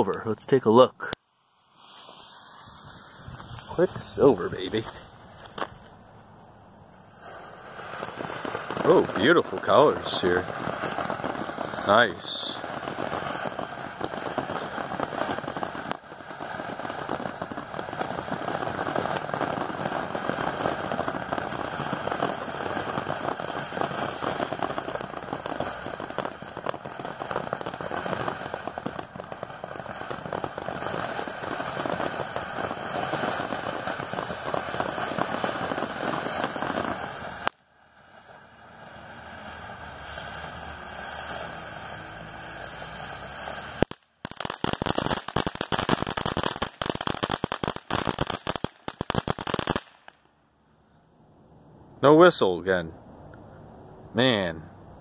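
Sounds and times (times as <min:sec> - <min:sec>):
fireworks fountain hissing: 0:00.0 - 0:50.4
rapid firework crackles and pops: 0:00.0 - 0:50.4.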